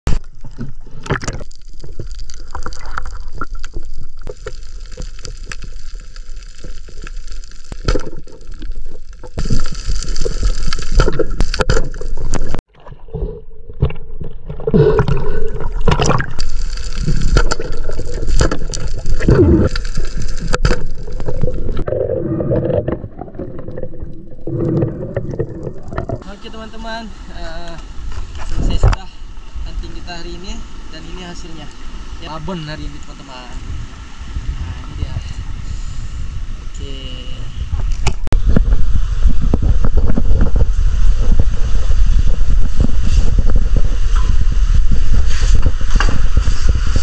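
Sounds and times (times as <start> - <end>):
underwater water gurgling: 0.1 - 26.3, 37.7 - 47.0.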